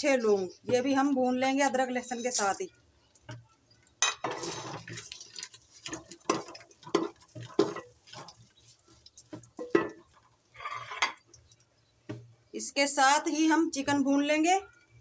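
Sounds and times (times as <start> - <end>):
spices frying: 0.0 - 15.0
spoon scraping and knocking pot: 4.0 - 11.4.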